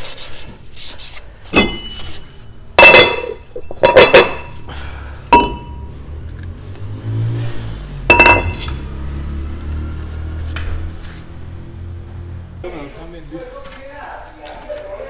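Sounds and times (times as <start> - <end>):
metal clinking with ringing tone: 1.5 - 4.6, 5.3 - 5.9, 8.1 - 8.9.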